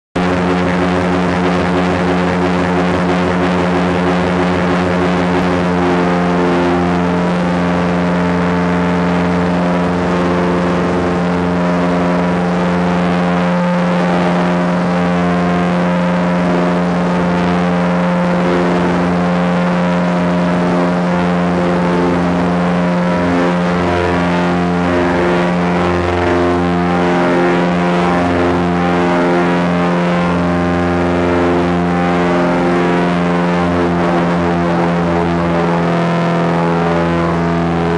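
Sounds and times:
small plane engine drone: 0.2s - 37.9s.

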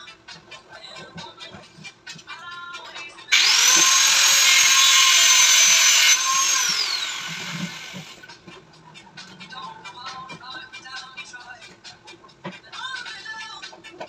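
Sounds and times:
electric drill whining: 3.3s - 8.2s.

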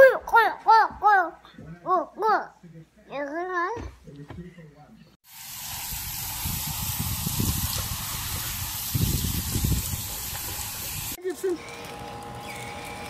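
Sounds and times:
hose nozzle spraying water: 5.3s - 11.2s.

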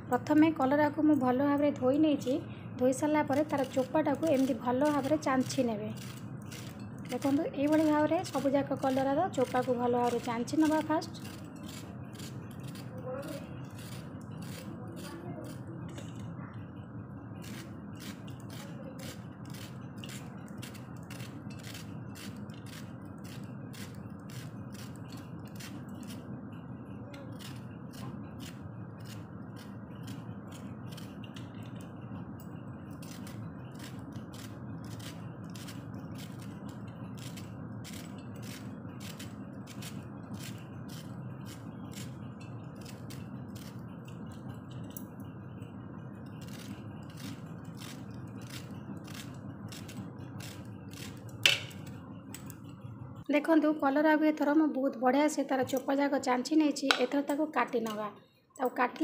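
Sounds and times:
low background hum: 0.0s - 59.0s
knife scraping gourd skin: 3.3s - 16.2s, 17.4s - 26.3s, 27.3s - 32.0s, 32.9s - 45.0s, 46.2s - 52.8s.

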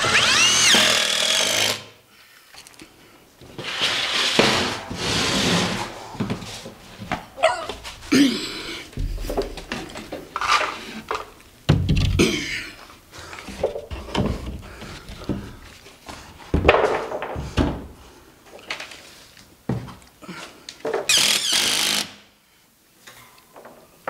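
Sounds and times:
board thumping and scraping on studs: 3.4s - 18.1s.

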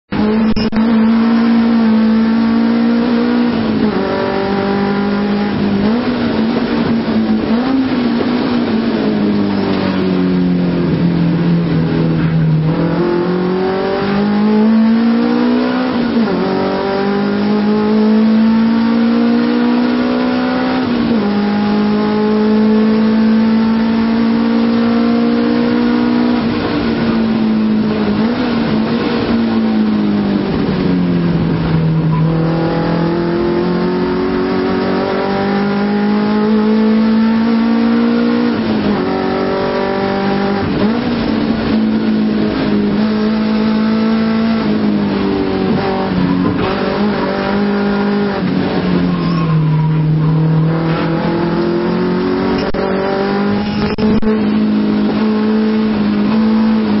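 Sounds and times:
car engine revving in cabin: 0.1s - 57.0s.

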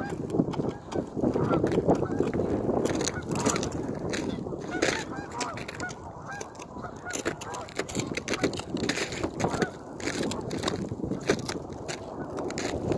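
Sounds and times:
geese honking: 0.0s - 2.4s, 3.1s - 8.6s, 9.4s - 10.0s
footsteps crunching on snow: 0.0s - 12.9s.

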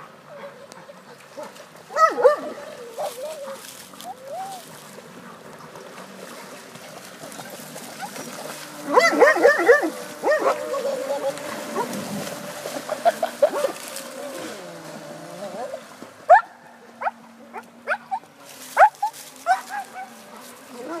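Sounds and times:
small motor whine: 9.8s - 16.1s.

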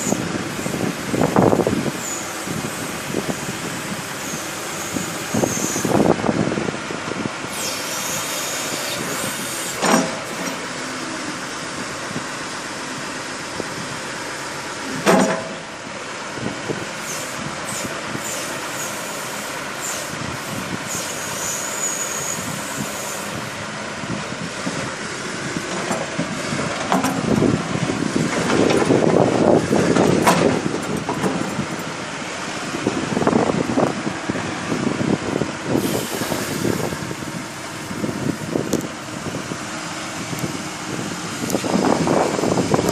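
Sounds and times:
backhoe diesel engine running: 0.0s - 42.9s.

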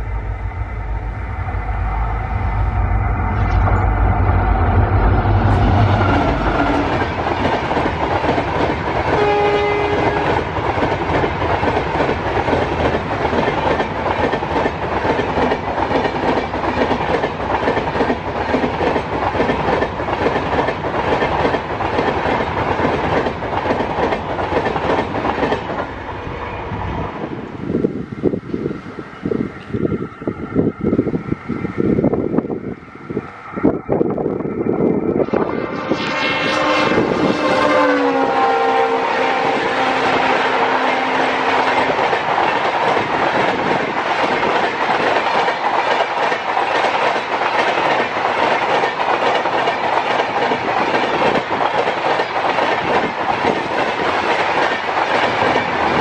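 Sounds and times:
locomotive engine rumbling: 0.0s - 9.5s
train horn blast: 3.4s - 7.0s, 9.1s - 10.4s, 35.2s - 42.0s
train wheels clickety-clack: 5.2s - 26.1s, 39.2s - 56.0s.

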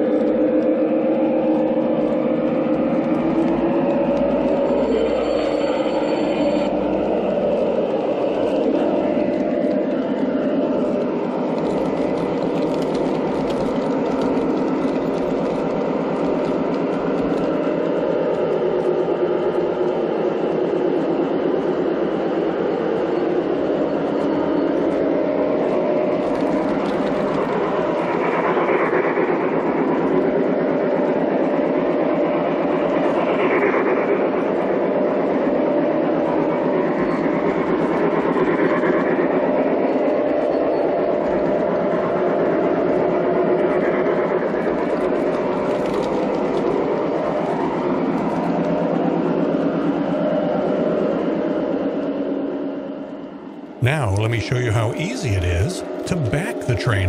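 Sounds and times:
model train rolling on track: 0.0s - 33.6s.

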